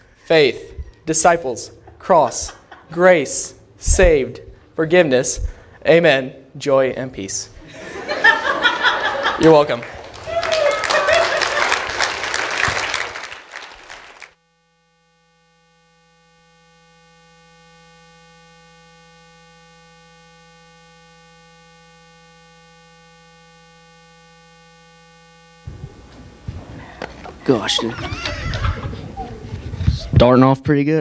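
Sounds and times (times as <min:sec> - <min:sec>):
applause and laughter: 0:08.2 - 0:14.4
steady electronic tone: 0:14.4 - 0:29.2.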